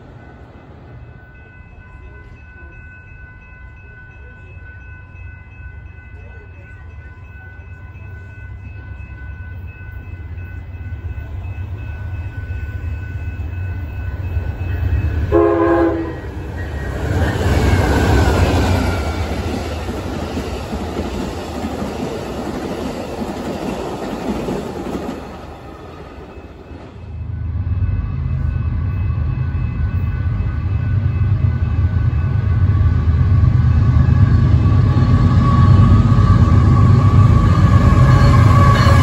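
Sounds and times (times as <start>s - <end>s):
train rumbling: 0.0s - 39.0s
train wheels rushing on rails: 0.0s - 39.0s
train horn blast: 15.3s - 18.0s, 32.6s - 39.0s.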